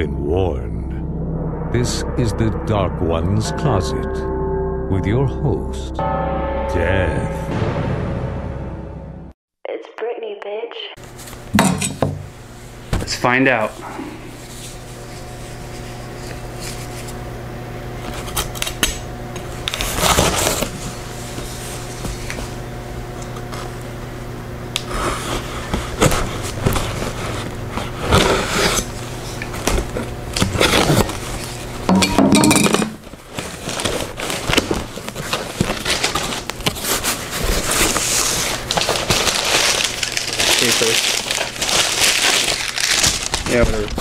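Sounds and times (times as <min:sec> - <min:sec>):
low hum: 0:00.0 - 0:09.4, 0:26.7 - 0:33.2
packing paper rustling: 0:33.0 - 0:44.0.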